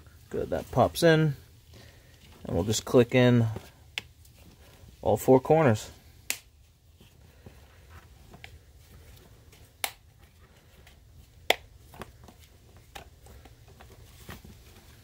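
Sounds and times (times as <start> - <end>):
plastic handling sounds: 1.6 - 5.3, 6.5 - 15.0.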